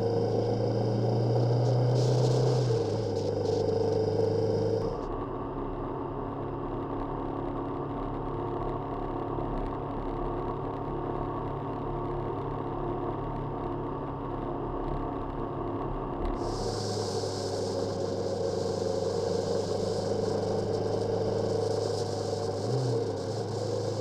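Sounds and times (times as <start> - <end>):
motorcycle engine running: 0.0 - 5.1, 16.2 - 24.0.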